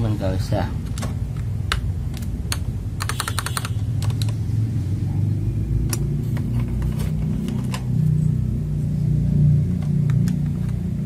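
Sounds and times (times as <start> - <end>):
mechanical keyboard keys clacking: 0.9 - 4.4.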